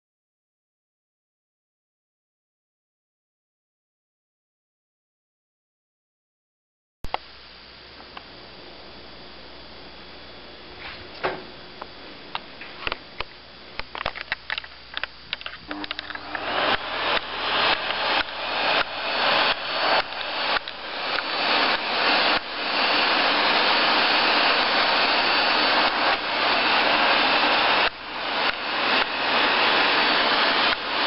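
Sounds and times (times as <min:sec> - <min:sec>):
vacuum cleaner running: 0:08.0 - 0:31.0
scattered clicks: 0:12.3 - 0:18.9.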